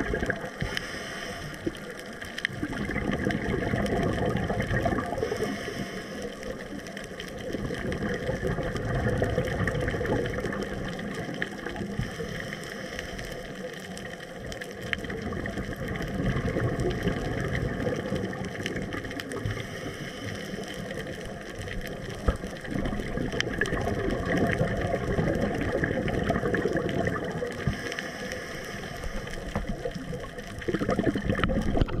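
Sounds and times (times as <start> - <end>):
bubbles gurgling underwater: 0.0 - 32.0
diver breathing through regulator: 0.5 - 2.1, 5.1 - 6.7, 12.0 - 13.6, 19.4 - 21.0, 27.6 - 29.9.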